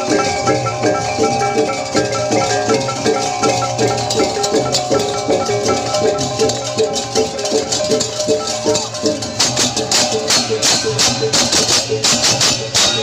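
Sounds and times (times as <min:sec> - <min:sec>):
drums: 0:00.0 - 0:13.0
hand cymbals clashing: 0:00.0 - 0:13.0
kettle-gong chimes: 0:00.0 - 0:13.0.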